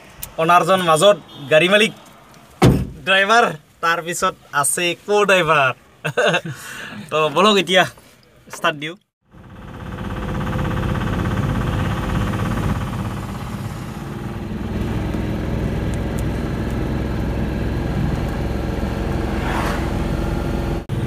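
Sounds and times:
road rumble: 0:00.0 - 0:05.0, 0:09.3 - 0:21.0
small diesel engine droning: 0:09.3 - 0:21.0.

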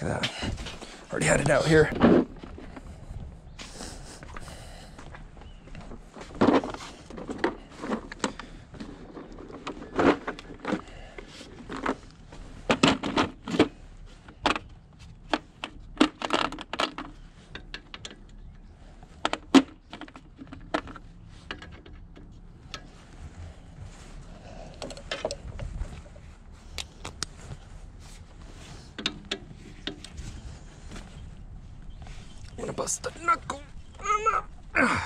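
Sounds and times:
tools and metal parts clanking: 0:05.9 - 0:14.8, 0:15.4 - 0:23.4, 0:24.0 - 0:26.8.

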